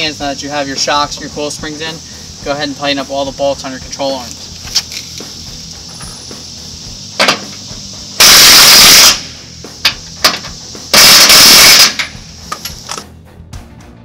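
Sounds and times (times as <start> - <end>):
impact wrench hammering: 9.8 - 12.2.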